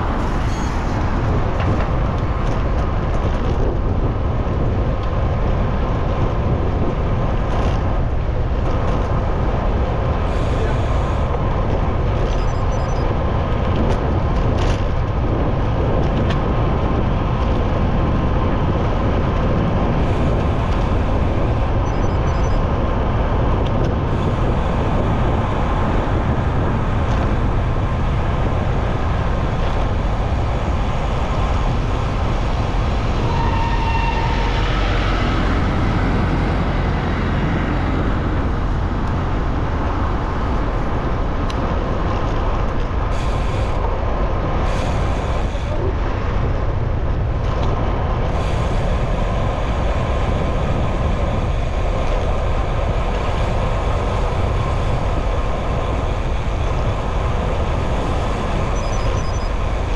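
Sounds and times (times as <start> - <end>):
city traffic noise: 0.0 - 59.9
wind rumble on microphone: 0.0 - 59.9.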